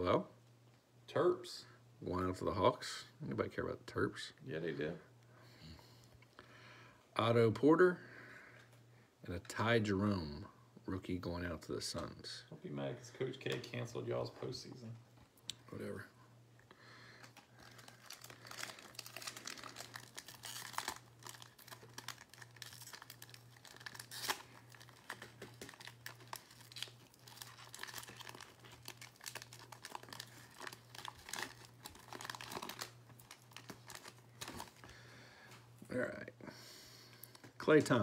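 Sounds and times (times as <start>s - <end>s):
wrapper tearing and crinkling: 17.2s - 34.9s.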